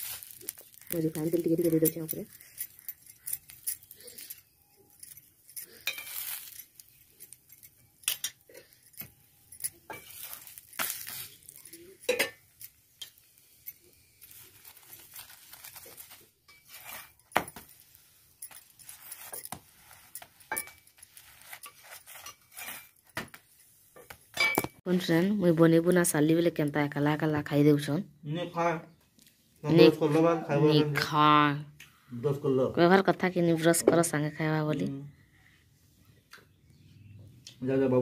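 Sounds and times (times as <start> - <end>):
metal pots and utensils clinking: 0.0 - 23.1, 24.0 - 24.8
metal spatula scraping on griddle: 0.0 - 24.5.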